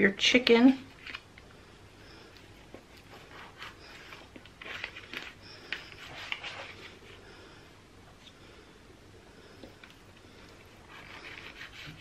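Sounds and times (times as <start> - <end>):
knife sawing on cutting board: 10.9 - 12.0.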